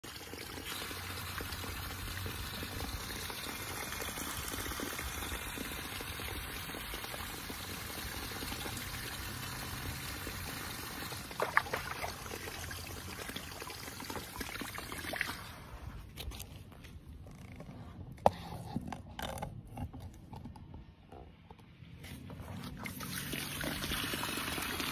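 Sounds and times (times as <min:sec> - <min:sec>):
hose water splashing into pool: 0:00.0 - 0:16.1, 0:22.1 - 0:24.9.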